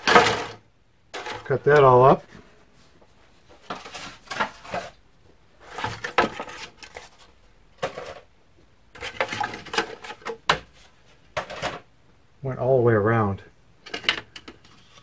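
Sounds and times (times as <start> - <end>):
plastic crackling and clattering: 0.0 - 2.2, 3.6 - 5.0, 5.6 - 8.3, 8.9 - 11.9, 13.8 - 15.0.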